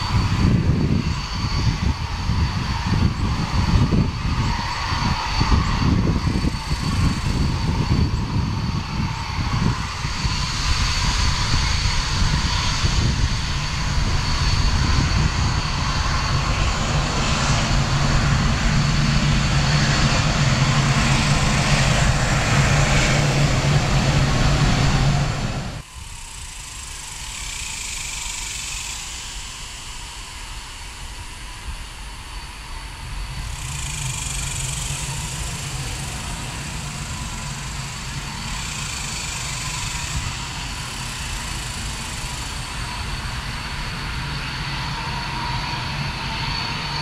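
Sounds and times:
jet engine whine and rumble: 0.0 - 47.0.

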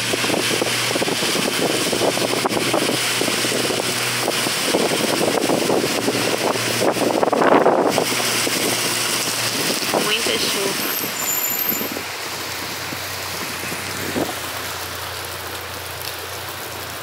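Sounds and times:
low car hum: 0.0 - 17.0
rain and tyres on wet road: 0.0 - 17.0.

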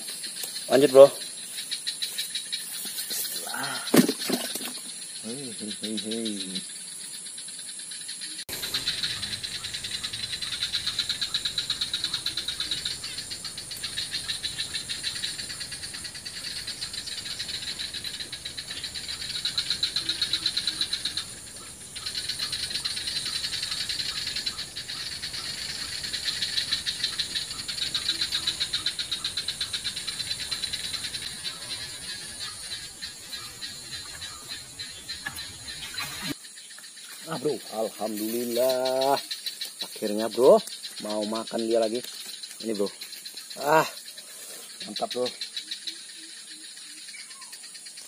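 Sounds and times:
insects chirring: 0.0 - 48.0.

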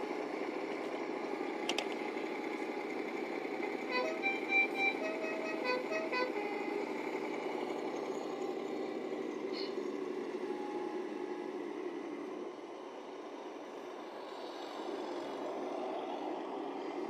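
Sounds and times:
diesel engine sound from small speaker: 0.0 - 17.0
short horn notes: 3.9 - 6.7.

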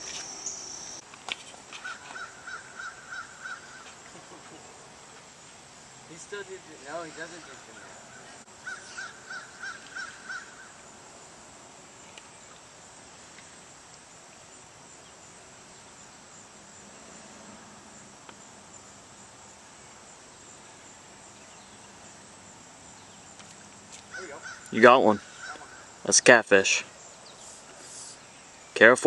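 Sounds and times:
insects buzzing: 0.0 - 29.0
bird calling short notes: 24.1 - 25.9.

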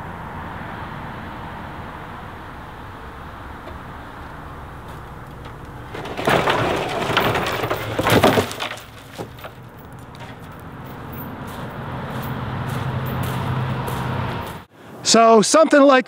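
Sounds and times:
small knocks: 4.8 - 11.3
tree limb crashing down: 4.9 - 10.6.

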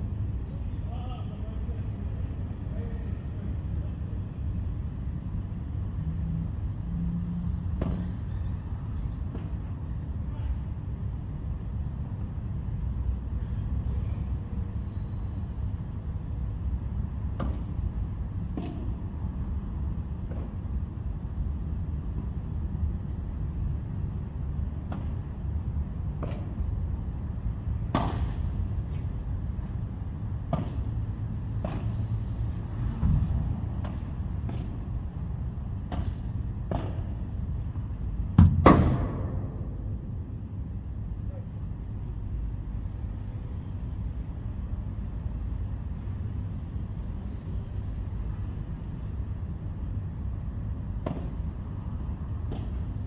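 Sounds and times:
rackets hitting ball: 38.4 - 39.6.

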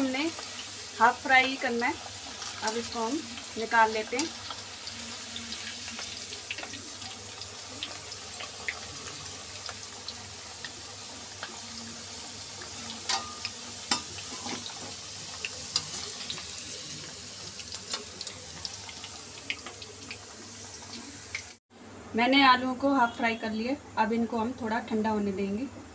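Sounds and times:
oil sizzling: 0.0 - 21.6.

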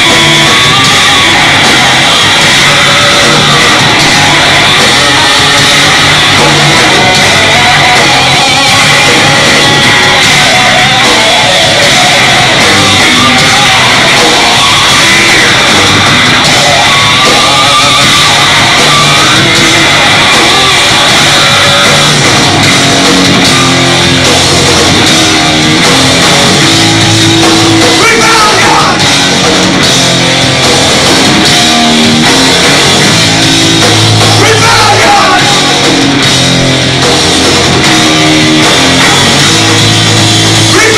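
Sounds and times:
metal band playing: 0.0 - 40.9
person shouting vocals: 28.0 - 29.0, 34.4 - 35.6.

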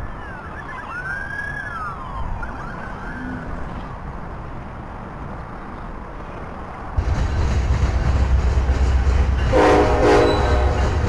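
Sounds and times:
emergency vehicle siren wailing: 0.0 - 3.6
low rumble: 7.0 - 9.6.

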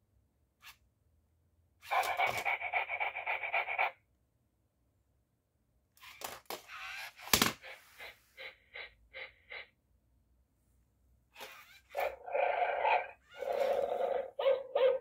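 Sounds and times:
toy dog sound effect: 1.9 - 4.0, 6.0 - 9.7, 11.4 - 15.0.

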